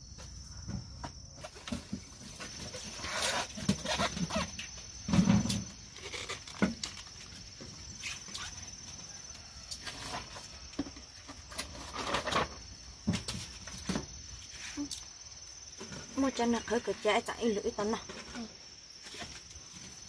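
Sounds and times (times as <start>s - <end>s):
crickets shrilling: 0.0s - 20.0s
handling knocks and rustles: 0.3s - 14.9s.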